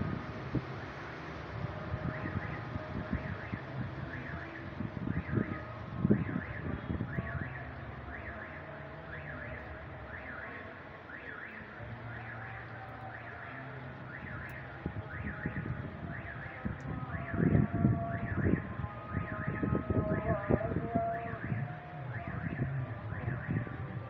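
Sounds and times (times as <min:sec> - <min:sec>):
wind on microphone: 0:00.0 - 0:07.6, 0:14.7 - 0:24.0.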